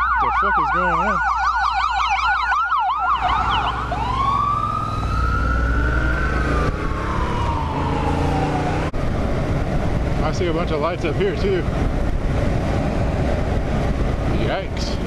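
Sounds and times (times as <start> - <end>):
emergency vehicle siren: 0.0 - 9.7.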